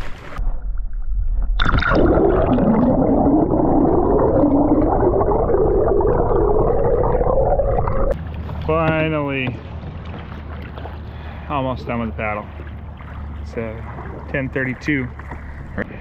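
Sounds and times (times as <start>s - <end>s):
underwater water rumble: 0.0s - 16.0s
wavering low hum: 0.0s - 16.0s
underwater splash burst: 1.3s - 8.2s.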